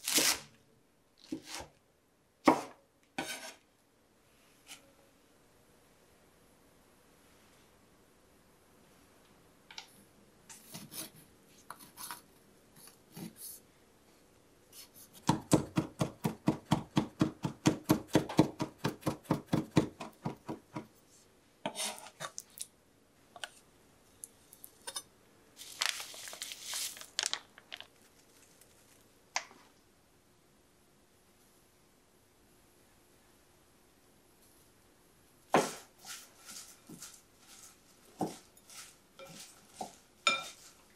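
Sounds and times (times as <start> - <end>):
knife chopping on wooden board: 15.2 - 20.9
rustling and scraping: 25.6 - 29.8, 35.6 - 40.9.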